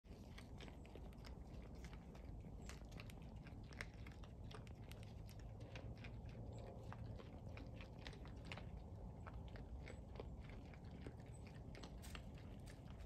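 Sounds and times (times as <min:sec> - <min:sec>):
hogs crunching feed: 0:00.0 - 0:13.0.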